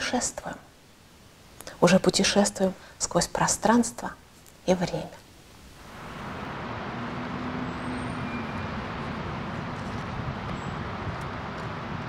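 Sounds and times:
distant road traffic hum: 5.6s - 12.0s.

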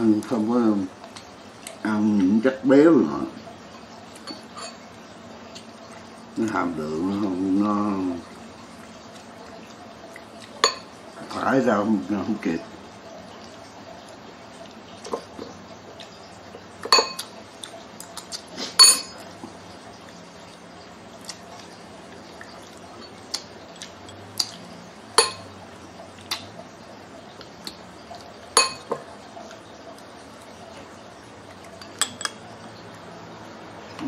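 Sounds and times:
spoons clinking on ceramic bowls: 10.6s - 10.9s, 16.8s - 17.3s, 18.8s - 19.2s, 25.2s - 25.5s, 28.6s - 29.0s, 31.8s - 32.4s.

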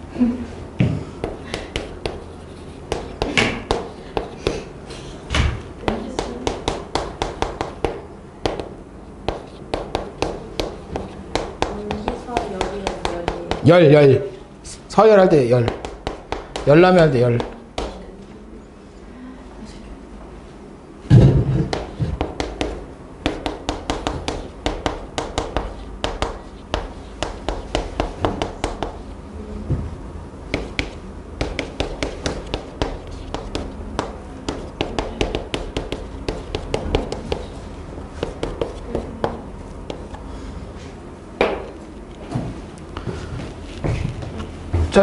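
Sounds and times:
chalk writing on a blackboard: 1.2s - 4.7s, 5.9s - 13.8s, 15.6s - 18.0s, 21.7s - 29.1s, 30.5s - 40.2s
thump: 21.1s - 21.6s.

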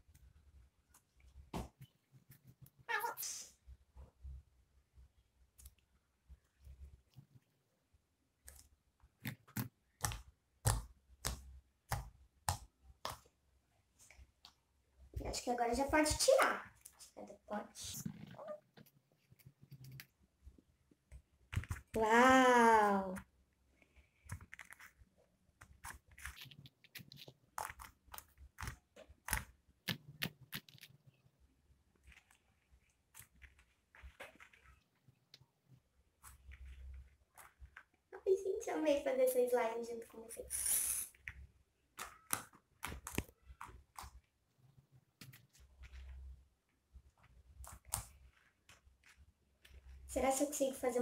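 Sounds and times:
slime squelching: 0.1s - 39.0s, 40.0s - 51.0s.

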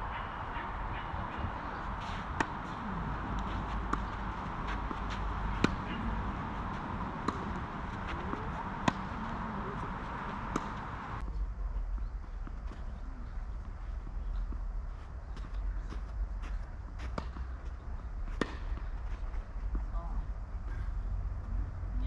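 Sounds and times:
tennis racket hitting ball: 2.1s - 11.0s.

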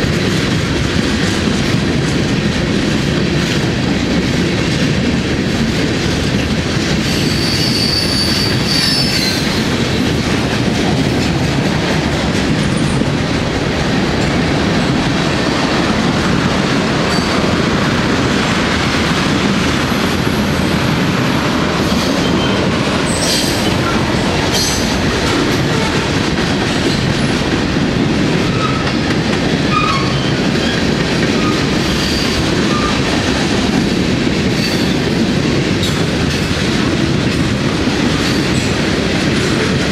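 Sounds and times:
train wheels rumbling on rails: 0.0s - 39.9s
high-pitched wheel squeals: 7.1s - 9.5s.

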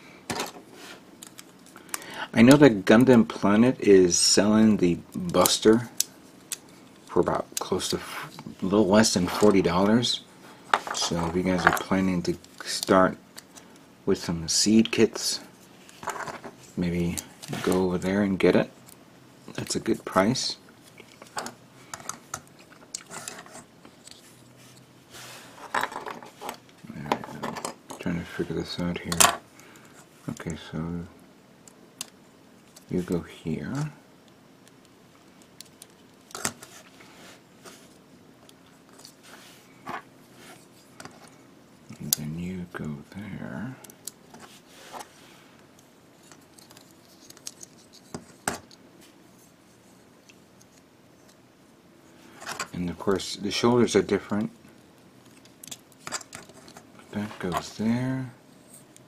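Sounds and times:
plastic parts clicking and rattling: 46.2s - 48.8s, 55.2s - 57.8s.

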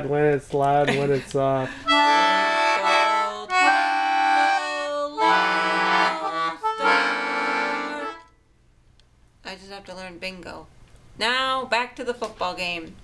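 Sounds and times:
concertina playing chords: 1.9s - 8.4s.

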